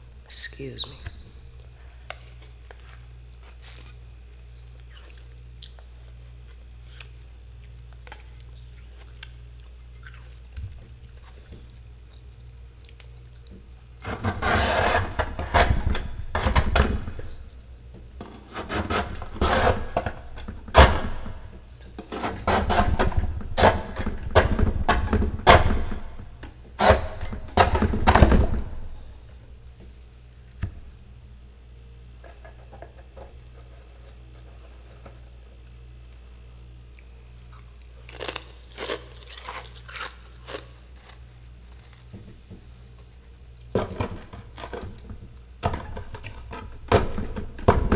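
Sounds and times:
metal spatula scraping frost: 0:14.0 - 0:15.6.

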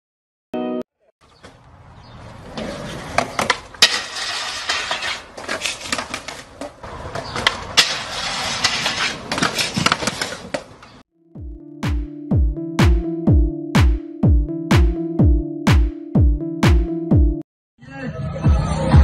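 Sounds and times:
skateboard wheels rolling: 0:01.4 - 0:11.0
skateboard clacks and knocks: 0:02.4 - 0:10.8.

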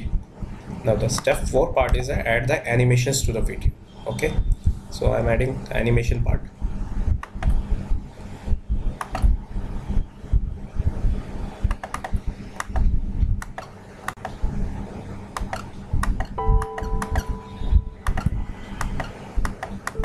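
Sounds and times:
low hum: 0:00.0 - 0:20.0
dull low thumps: 0:03.2 - 0:05.2, 0:06.1 - 0:13.4, 0:15.9 - 0:18.4
computer mouse clicks: 0:07.2 - 0:07.6, 0:09.0 - 0:09.3, 0:11.7 - 0:14.4, 0:15.4 - 0:17.3, 0:18.0 - 0:20.0.

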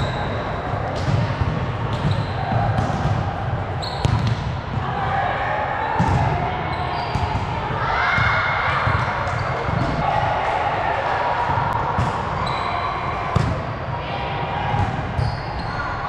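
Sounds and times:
players' voices echoing: 0:00.0 - 0:16.0
volleyball hits and thuds: 0:00.9 - 0:03.4, 0:13.4 - 0:13.7.

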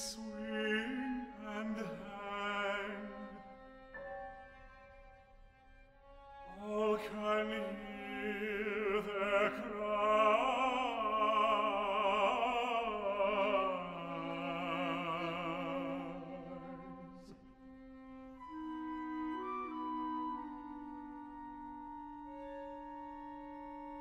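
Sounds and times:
operatic singing: 0:00.0 - 0:03.8, 0:06.5 - 0:17.4.

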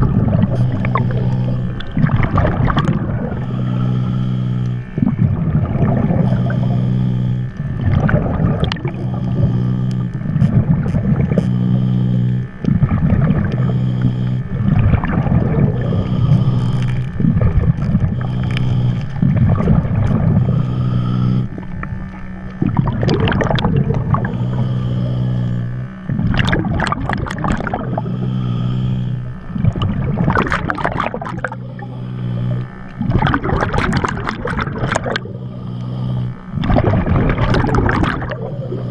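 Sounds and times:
bubbling: 0:00.0 - 0:38.9
underwater boat motor hum: 0:00.0 - 0:38.9.

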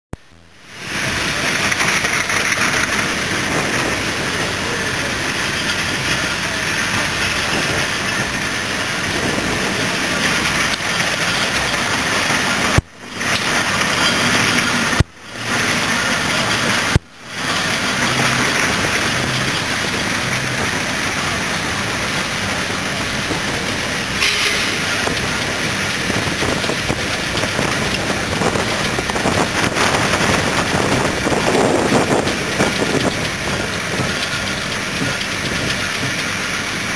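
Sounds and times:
steady rushing noise: 0:00.2 - 0:36.9
steam roller running: 0:00.3 - 0:36.9.

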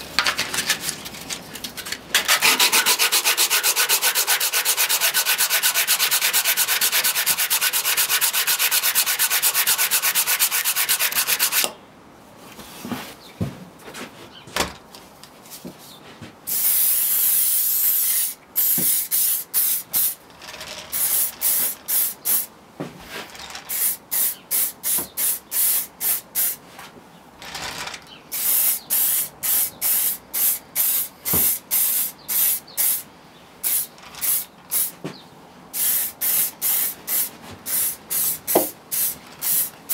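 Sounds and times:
hand sanding wood: 0:02.2 - 0:11.7
aerosol spray can hissing: 0:16.5 - 0:20.2, 0:23.7 - 0:26.6, 0:28.3 - 0:33.0, 0:33.6 - 0:34.9, 0:35.8 - 0:39.9.

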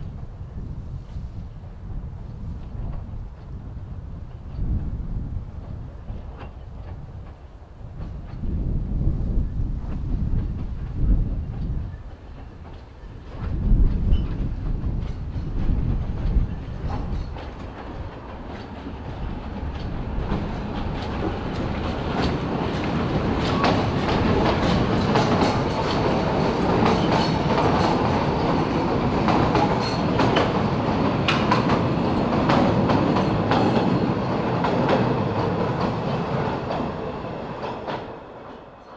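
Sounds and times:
train coaches rumbling on track: 0:00.0 - 0:38.9
wheels clicking over rail joints: 0:10.4 - 0:36.9.

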